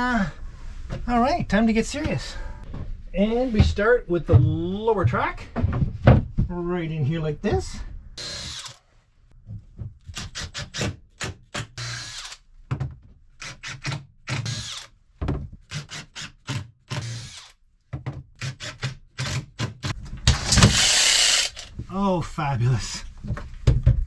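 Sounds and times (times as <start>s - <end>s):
cordless drill bursts: 11.8s - 12.4s, 14.4s - 14.9s, 17.0s - 17.5s, 20.3s - 21.7s.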